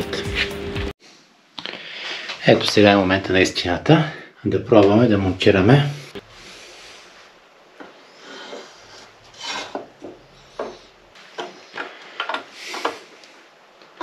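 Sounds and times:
metal scraping on metal: 0:08.3 - 0:11.0.

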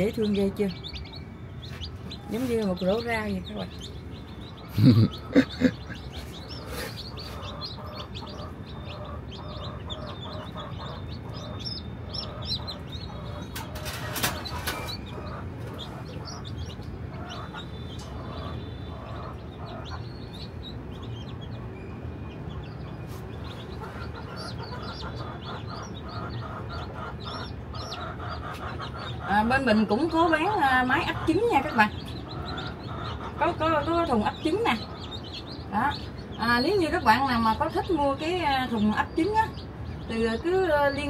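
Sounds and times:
chicks peeping: 0:00.0 - 0:41.0
clucking: 0:04.6 - 0:20.1, 0:23.4 - 0:35.4.

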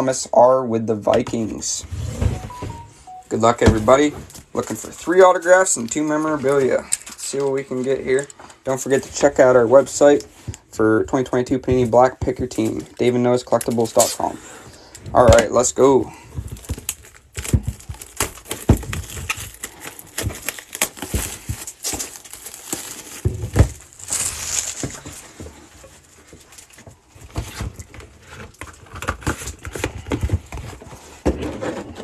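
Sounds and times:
plastic shrink wrap crinkling: 0:03.1 - 0:10.4, 0:15.2 - 0:30.9
cardboard box knocks and scrapes: 0:29.8 - 0:32.0.

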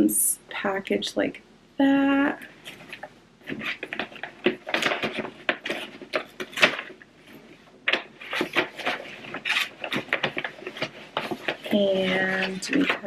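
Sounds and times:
cardboard box rustling and crinkling: 0:02.6 - 0:13.0.

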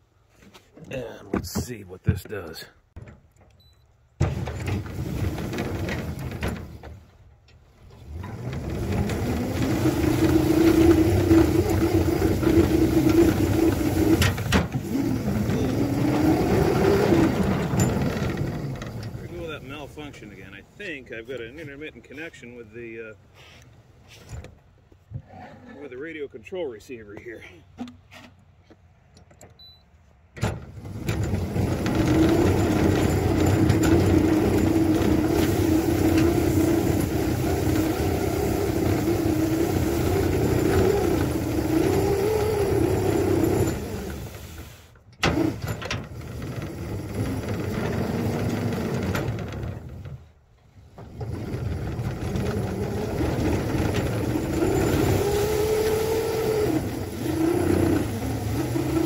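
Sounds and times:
locomotive drive running under load: 0:01.2 - 0:03.1, 0:04.2 - 0:22.8, 0:30.4 - 0:59.0
plow pushing through snow: 0:04.2 - 0:22.8, 0:30.5 - 0:59.0.

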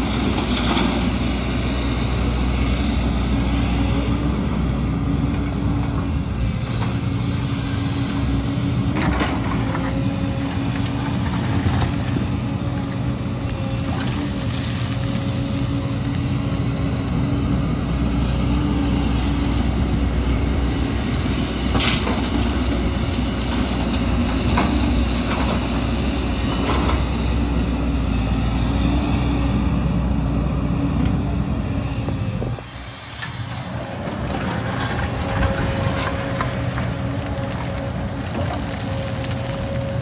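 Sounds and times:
excavator diesel engine running: 0:00.0 - 0:40.0.

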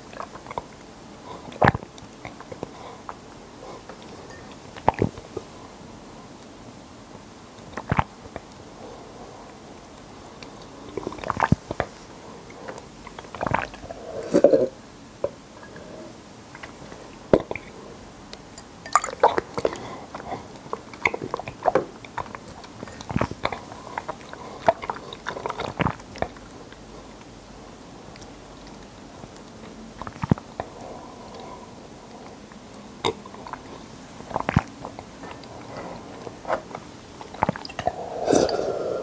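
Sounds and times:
wet chewing: 0:18.9 - 0:27.3, 0:28.1 - 0:39.0
mouth clicks: 0:37.2 - 0:39.0.

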